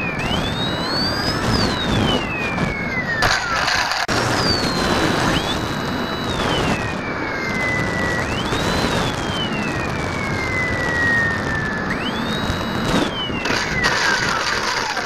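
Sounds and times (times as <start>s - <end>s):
ultralight engine and propeller: 0.0s - 15.0s.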